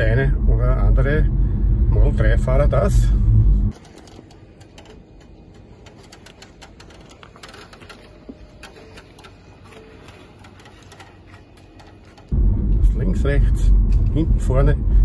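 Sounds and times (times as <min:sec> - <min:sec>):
low rumble: 0:00.0 - 0:03.8, 0:12.3 - 0:15.0.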